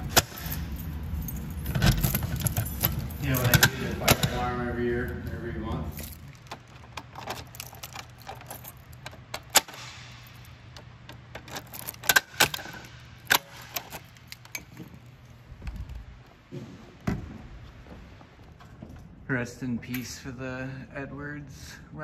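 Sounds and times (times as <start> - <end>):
keys rattling: 0.0 - 16.3, 18.4 - 20.4.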